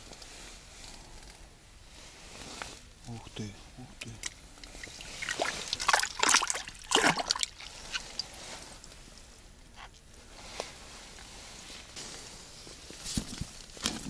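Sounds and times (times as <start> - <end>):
water dripping: 4.2 - 8.3
water splashing and sloshing: 4.2 - 8.9.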